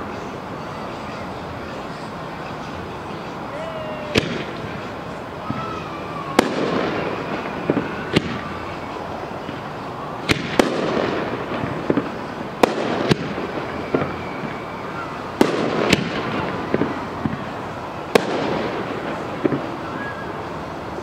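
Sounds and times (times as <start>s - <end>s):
fireworks bangs with echo: 3.5s - 20.8s.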